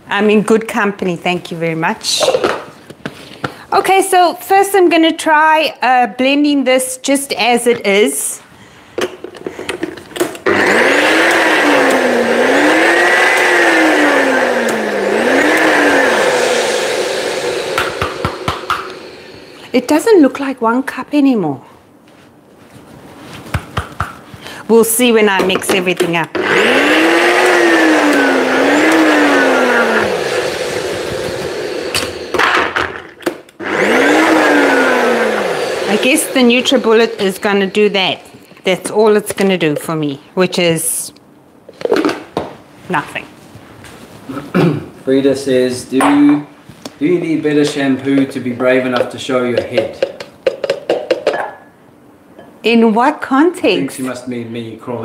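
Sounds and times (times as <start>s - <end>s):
blender motor whining: 10.4s - 19.8s, 26.3s - 38.4s
blender clicking onto base: 11.2s - 12.1s, 13.0s - 13.8s, 17.5s - 19.0s, 26.2s - 34.4s.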